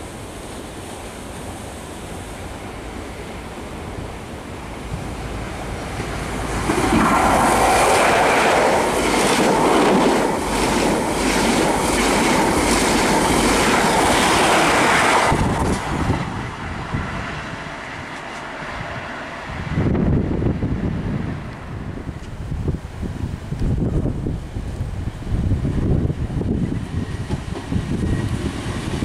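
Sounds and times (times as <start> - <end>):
wind on microphone: 4.8 - 29.0
train wheels clattering over rail joints: 6.5 - 16.0.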